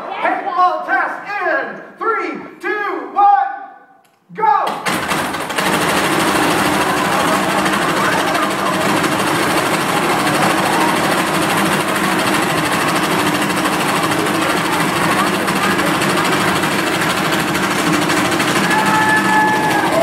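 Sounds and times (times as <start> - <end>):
paintball cannon rapid firing: 4.7 - 20.0.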